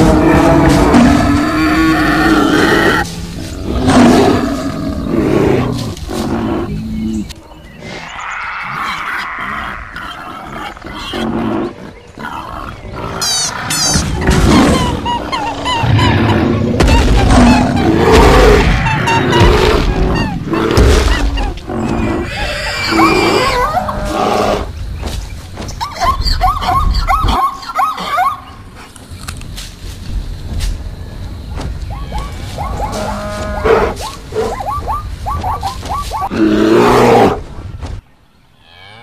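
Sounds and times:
animal roars and grunts: 0.0s - 24.8s, 35.4s - 37.6s.

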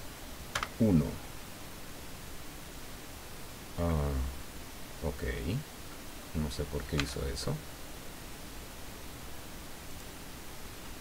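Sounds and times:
microphone hiss: 0.0s - 11.0s.

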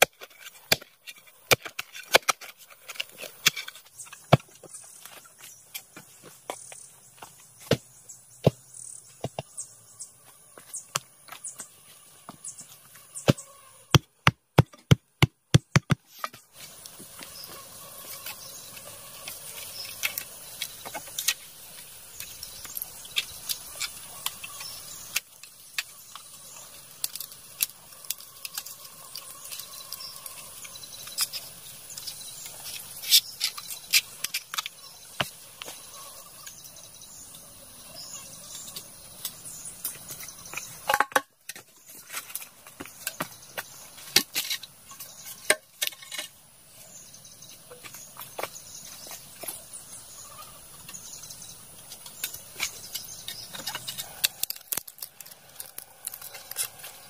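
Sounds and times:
sharp taps and knocks: 13.3s - 16.4s.

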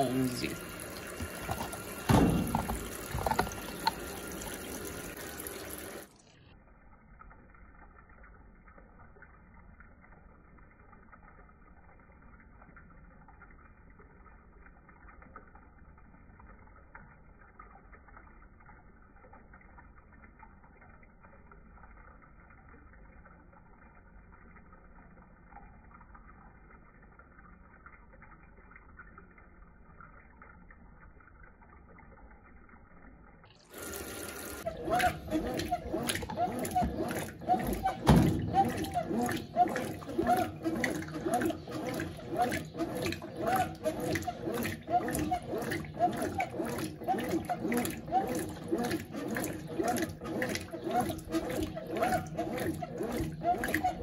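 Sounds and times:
washing machine filling with water: 0.0s - 54.0s
knocks in washing machine: 1.2s - 4.0s, 34.8s - 45.4s.

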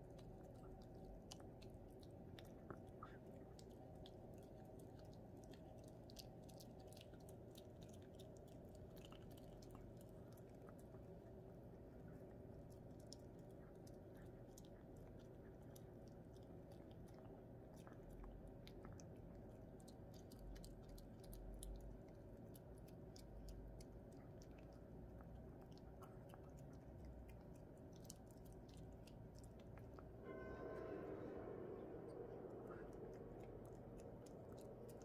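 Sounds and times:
puppy chewing a treat: 0.0s - 30.2s, 32.2s - 35.0s.

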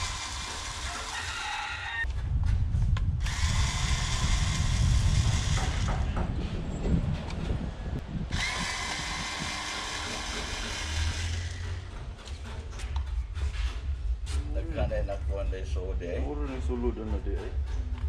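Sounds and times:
handheld power tool motor running: 0.0s - 1.4s, 3.2s - 6.1s, 8.3s - 11.9s.

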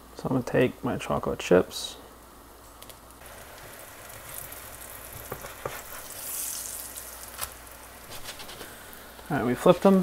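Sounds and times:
pancakes sizzling in butter: 3.2s - 10.0s
spatula sliding under pancake: 5.1s - 6.8s.

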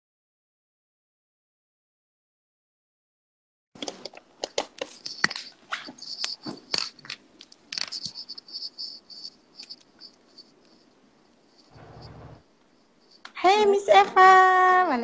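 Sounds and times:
high chirping pulse: 7.9s - 13.4s.

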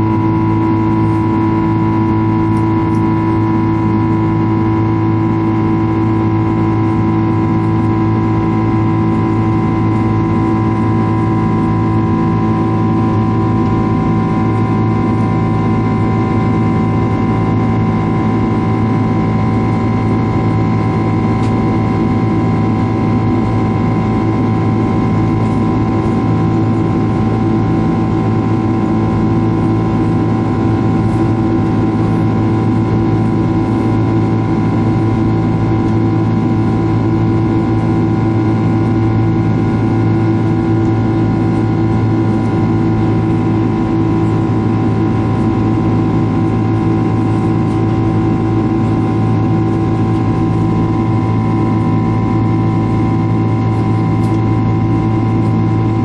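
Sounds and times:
jet engine drone in cabin: 0.0s - 56.0s.

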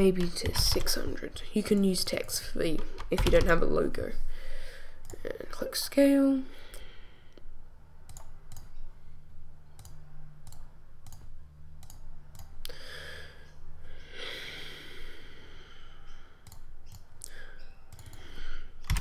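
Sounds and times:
low steady hum: 0.0s - 19.0s
computer mouse clicks: 8.1s - 8.8s, 9.7s - 12.6s, 16.4s - 17.3s, 17.9s - 19.0s.

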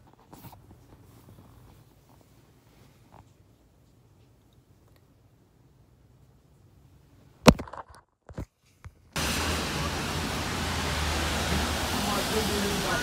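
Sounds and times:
city street traffic hum: 9.2s - 13.0s.

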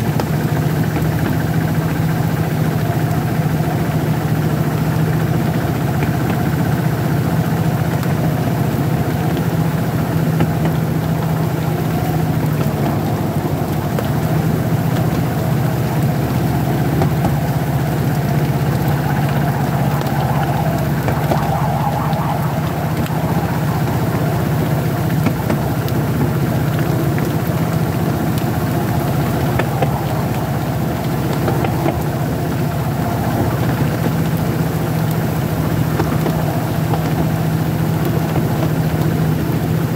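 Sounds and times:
locomotive engine droning: 0.0s - 39.9s.

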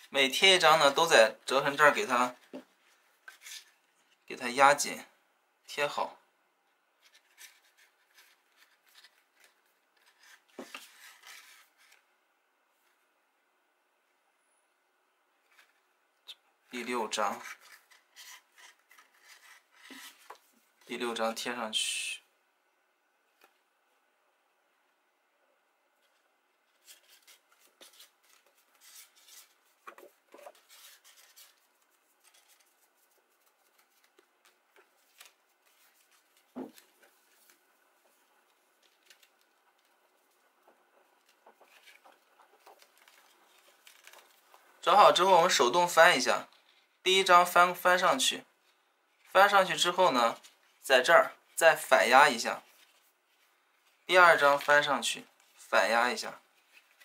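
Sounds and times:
cardstock rustling and scraping: 7.0s - 12.1s, 17.3s - 20.6s, 26.0s - 44.7s, 56.4s - 57.0s
paper sliding scrape: 10.0s - 12.0s.

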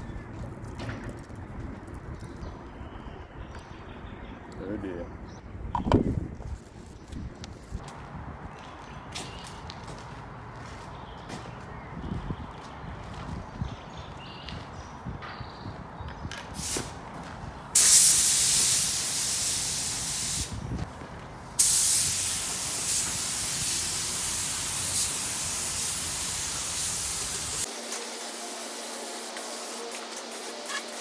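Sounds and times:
spray gun hissing: 17.8s - 20.6s, 21.6s - 31.0s.

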